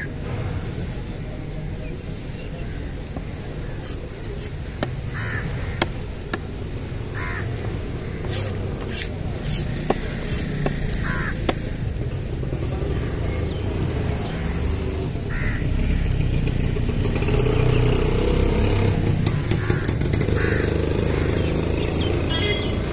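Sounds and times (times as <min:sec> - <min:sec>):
crows cawing: 0:05.1 - 0:06.0, 0:07.1 - 0:08.4, 0:11.0 - 0:11.4, 0:15.3 - 0:15.6, 0:19.6 - 0:21.5.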